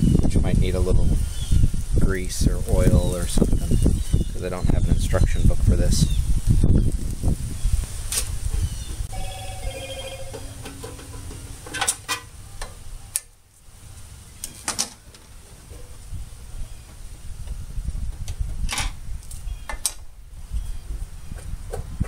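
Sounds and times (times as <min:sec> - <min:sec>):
short ringing tones: 0:09.1 - 0:10.6.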